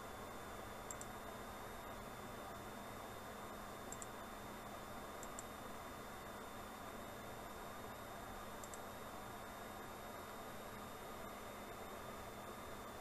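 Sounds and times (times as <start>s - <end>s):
faint hum: 0.0s - 13.0s
computer mouse clicks: 0.9s - 1.2s, 3.9s - 4.2s, 5.2s - 5.5s, 8.6s - 8.9s.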